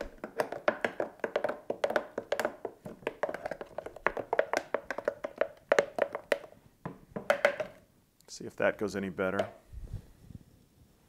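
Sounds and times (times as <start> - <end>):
spoon tapping and scraping jar: 0.0 - 7.8.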